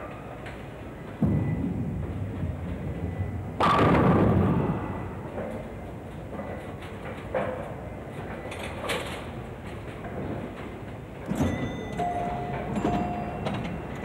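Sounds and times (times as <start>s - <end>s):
pinball machine tones: 11.2s - 14.0s.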